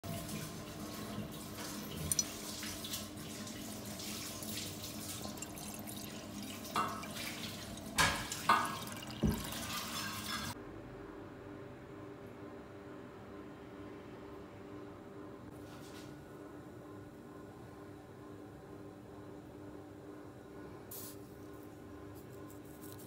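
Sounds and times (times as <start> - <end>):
water trickling into a saucepan: 0.0 - 10.6
knocks and splashes: 4.2 - 10.5.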